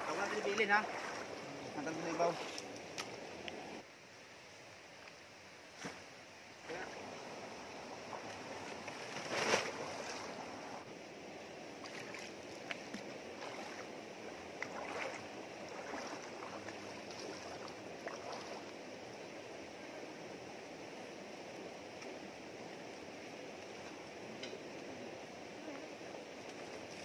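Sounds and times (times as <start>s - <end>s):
shallow rocky river running: 0.0s - 3.9s, 4.9s - 27.0s
small knocks and splashes: 14.6s - 18.6s.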